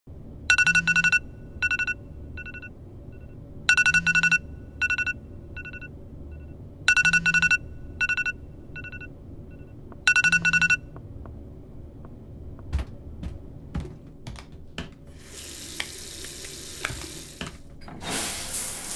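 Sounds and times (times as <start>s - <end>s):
phone alarm beeping: 0.5s - 11.0s.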